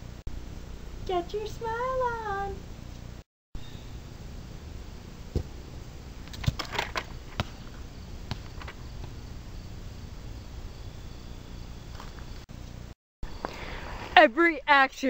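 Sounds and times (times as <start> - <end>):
high insect drone: 3.6 - 12.5.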